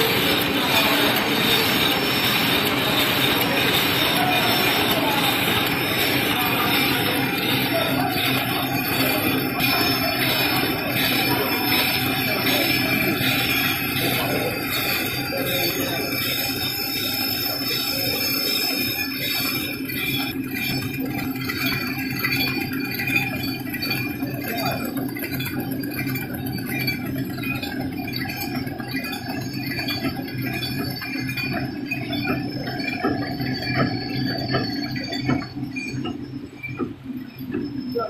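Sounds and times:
packing machine humming: 0.0s - 28.8s.

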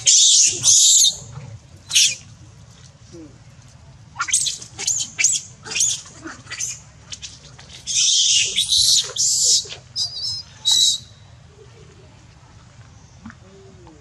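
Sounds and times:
whistle-like monkey cries: 0.0s - 1.2s, 1.9s - 2.2s, 7.9s - 11.1s
young monkeys squealing: 0.0s - 1.2s, 1.9s - 2.2s, 4.2s - 11.1s.

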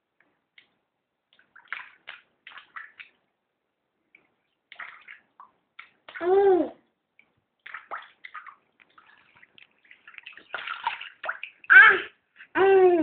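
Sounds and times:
water splashing: 1.3s - 3.2s, 4.2s - 6.5s, 7.6s - 12.2s
child making high-pitched sounds: 6.2s - 6.8s, 11.7s - 13.0s.

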